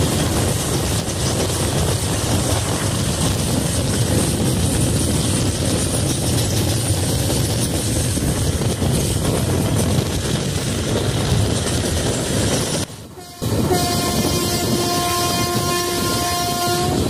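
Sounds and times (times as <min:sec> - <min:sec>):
rushing air: 0:00.0 - 0:17.0
train wheels on rails: 0:00.0 - 0:17.0
train horn long blast: 0:13.1 - 0:17.0.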